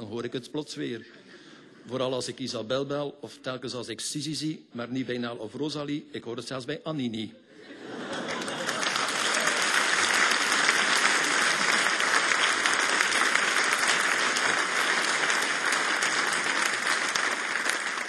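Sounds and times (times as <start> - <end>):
audience applauding: 7.9 - 18.0.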